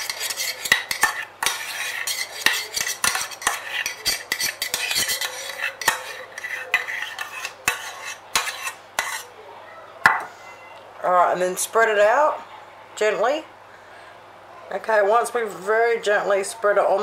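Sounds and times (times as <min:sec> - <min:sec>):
spoon scraping a saucepan: 0:00.0 - 0:09.4.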